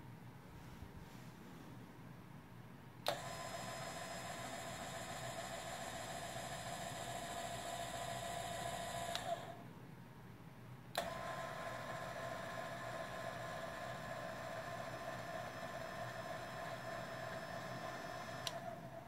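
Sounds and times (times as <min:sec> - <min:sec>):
actuator click: 0:03.0 - 0:03.3, 0:09.1 - 0:09.4, 0:10.9 - 0:11.2, 0:18.4 - 0:18.7
electric actuator whining: 0:03.1 - 0:09.6, 0:11.0 - 0:19.0.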